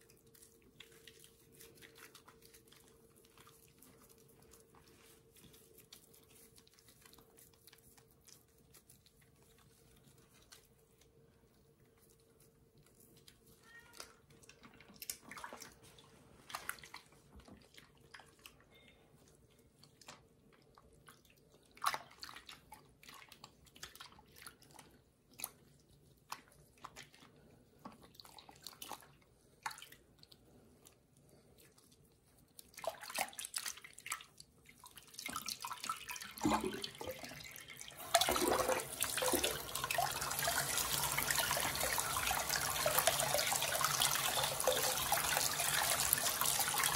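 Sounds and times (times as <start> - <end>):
water splashing and dripping: 32.7 - 46.9
water sloshing: 35.1 - 46.0
water running from tap: 36.0 - 46.9.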